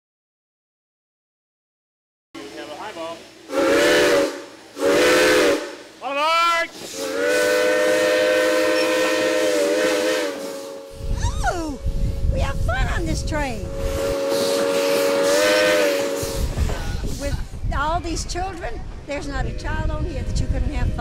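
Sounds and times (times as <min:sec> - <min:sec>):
steam locomotive whistle: 0:03.5 - 0:11.2, 0:13.2 - 0:17.3
low rumble: 0:10.8 - 0:15.1, 0:16.1 - 0:21.0.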